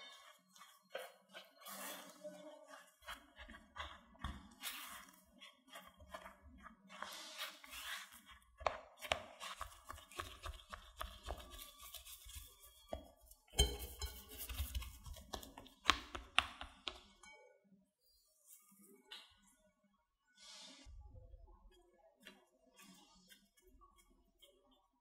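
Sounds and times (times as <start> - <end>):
spatula scraping glass bowl: 0.0 - 8.5, 11.1 - 15.2.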